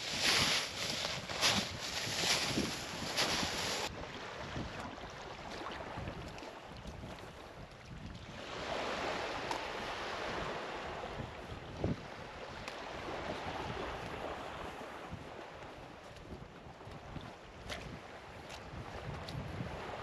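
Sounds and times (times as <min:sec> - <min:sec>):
gentle surf wash: 0:00.0 - 0:07.6, 0:08.2 - 0:16.1
wind: 0:00.0 - 0:20.0.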